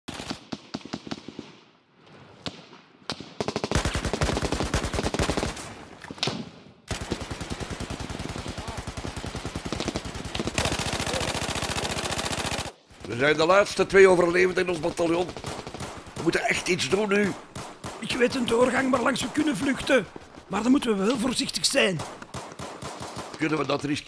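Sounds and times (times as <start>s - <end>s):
gunshots: 2.4s - 24.0s
rapid machine-gun fire: 3.4s - 5.7s, 6.9s - 23.6s.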